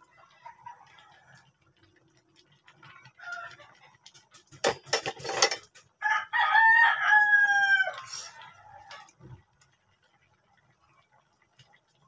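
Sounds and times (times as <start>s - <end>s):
rooster crowing: 6.0s - 9.1s.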